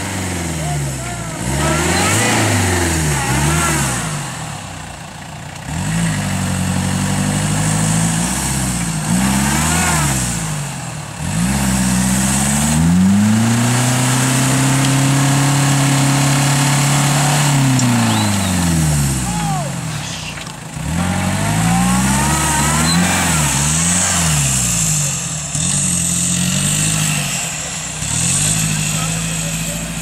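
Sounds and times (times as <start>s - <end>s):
diesel engine revving hard: 0.0s - 30.0s
tyres spinning in sand: 13.9s - 24.9s.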